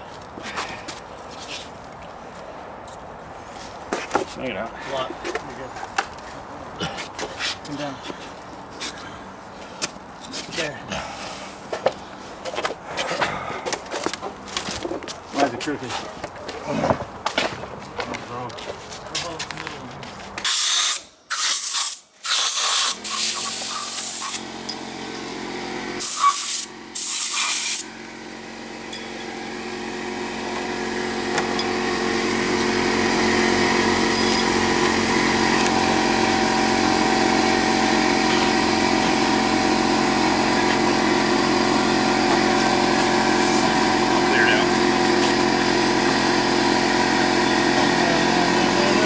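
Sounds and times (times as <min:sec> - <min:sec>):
compressed air blasting from nozzle: 0:20.4 - 0:24.5, 0:26.0 - 0:27.9
small engine running: 0:22.2 - 0:49.0.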